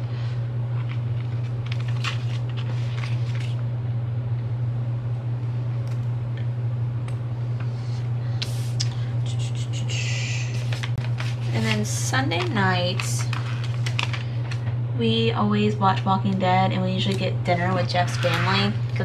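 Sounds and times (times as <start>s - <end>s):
steady low hum: 0.0s - 19.0s
stickers rustling and crackling: 0.7s - 3.6s, 10.6s - 14.7s, 17.0s - 19.0s.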